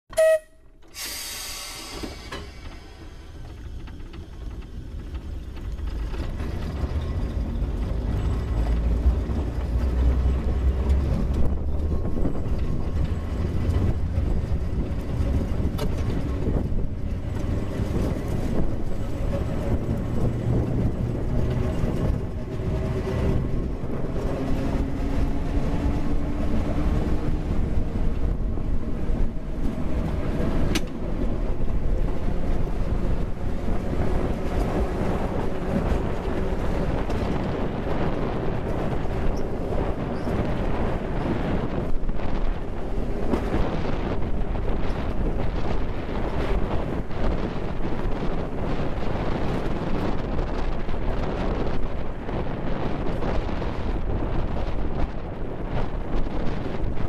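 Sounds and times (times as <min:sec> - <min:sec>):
short tone: 0:00.1 - 0:01.7
steel wheels rumbling on rails: 0:00.2 - 0:57.0
brief hiss: 0:00.9 - 0:03.0.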